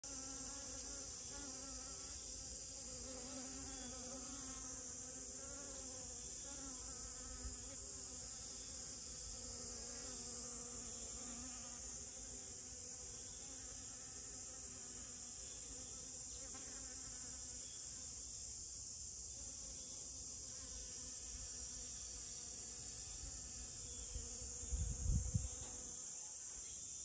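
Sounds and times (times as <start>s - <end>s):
honeybee buzzing: 0.1s - 18.2s, 19.3s - 26.2s.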